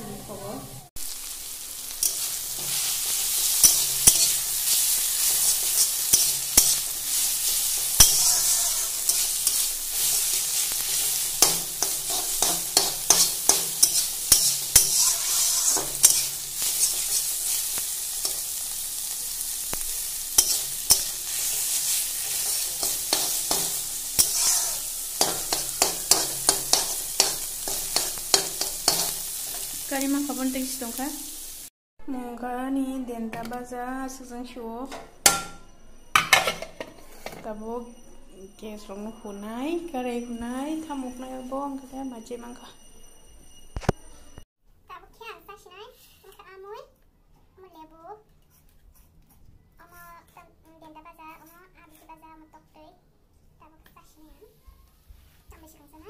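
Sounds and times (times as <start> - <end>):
greens sizzling in a pan: 0.9 - 31.7
metal spatula scraping a pan: 1.8 - 31.0, 35.0 - 37.6.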